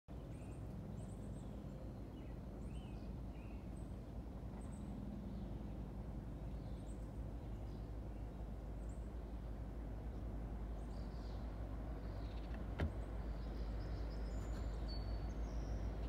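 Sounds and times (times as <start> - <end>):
birds chirping: 10.1 - 16.0.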